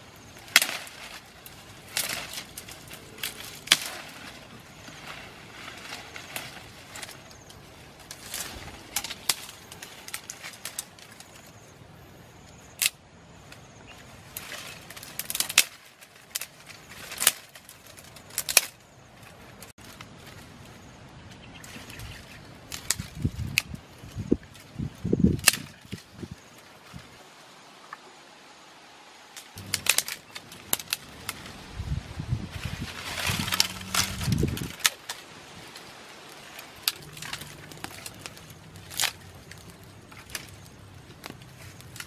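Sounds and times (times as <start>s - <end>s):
dry twigs snapping and crackling: 0.2s - 11.6s, 12.5s - 27.0s, 29.4s - 31.7s, 32.5s - 42.0s.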